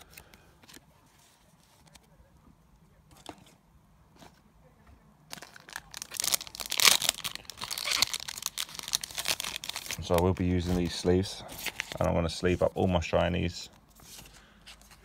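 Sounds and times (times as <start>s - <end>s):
card-pack wrapper crinkling and tearing: 5.3s - 12.1s.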